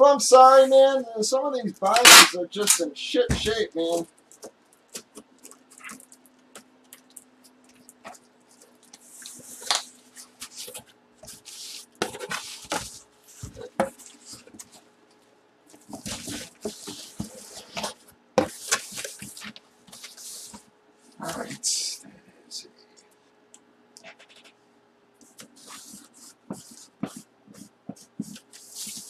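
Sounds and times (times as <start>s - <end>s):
faint steady hum: 0.0s - 29.0s
cardboard scraping and rustling: 9.0s - 14.8s, 15.8s - 20.6s.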